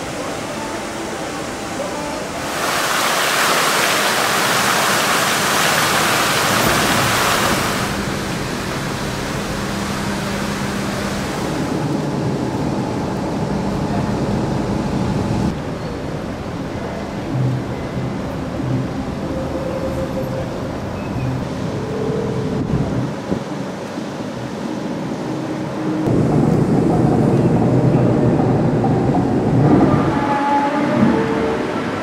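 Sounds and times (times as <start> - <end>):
fountain jets splashing: 0.0 - 12.4.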